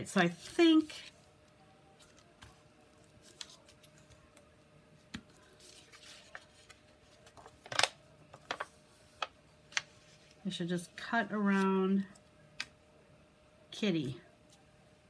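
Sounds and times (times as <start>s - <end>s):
paper and tools clicking and rustling: 5.1s - 10.4s.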